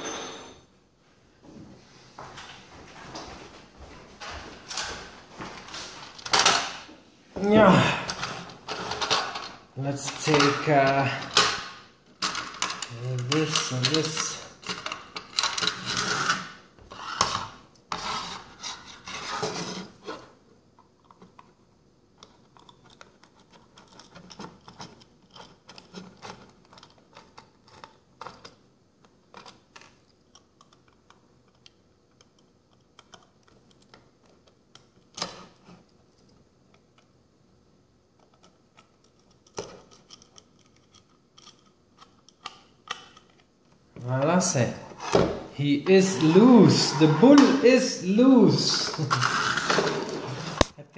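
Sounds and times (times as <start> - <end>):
handling and scraping: 7.4 - 11.6, 12.2 - 21.6, 38.2 - 50.8.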